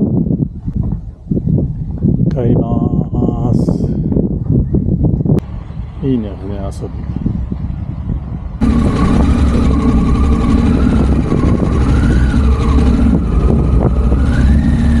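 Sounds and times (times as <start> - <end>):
motorcycle engine revving: 7.3 - 15.0.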